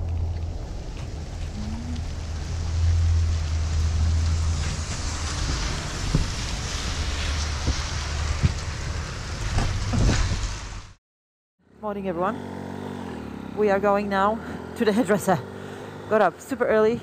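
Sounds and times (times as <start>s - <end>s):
low rumble: 0.0s - 11.0s
rain and wind hiss: 0.1s - 11.0s.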